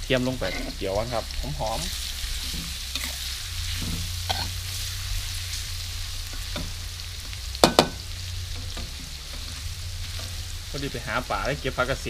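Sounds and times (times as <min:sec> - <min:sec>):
garlic sizzling in hot oil: 0:00.0 - 0:12.0
metal spatula scraping wok: 0:00.2 - 0:06.8, 0:08.5 - 0:11.0.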